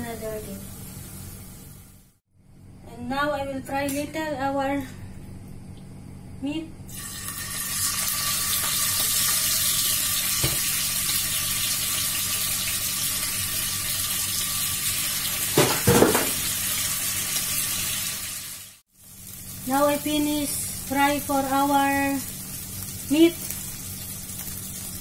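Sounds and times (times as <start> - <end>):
meat sizzling in a frying pan: 6.9 - 25.0.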